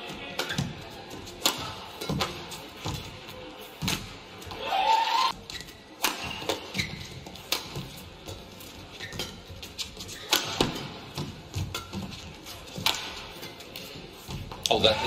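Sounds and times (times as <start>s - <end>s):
shoes squeaking on court: 0.0s - 4.6s, 5.3s - 15.0s
racket striking shuttlecock: 1.4s - 3.0s, 6.0s - 6.8s, 7.4s - 7.9s, 10.2s - 12.1s, 12.8s - 13.2s.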